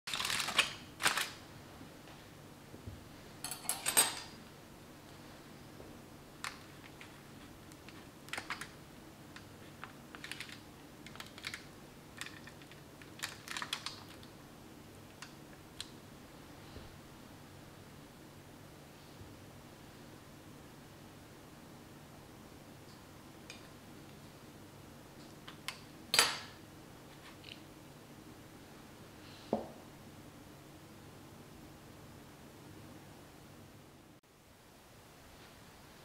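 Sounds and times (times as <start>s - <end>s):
aluminium foil crinkling: 0.1s - 1.4s, 9.7s - 14.3s.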